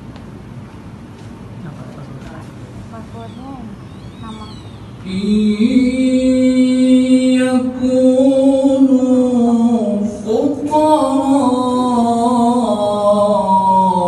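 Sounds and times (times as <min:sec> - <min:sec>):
person chanting unaccompanied: 0:05.0 - 0:14.0.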